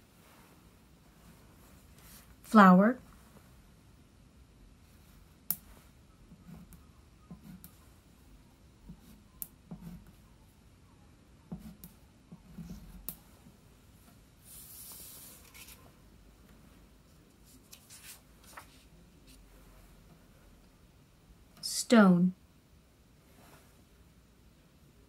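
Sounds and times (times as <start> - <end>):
crayon scratching on paper: 6.3 - 8.0, 8.9 - 10.2, 11.5 - 13.1
card sliding across table: 14.4 - 15.8.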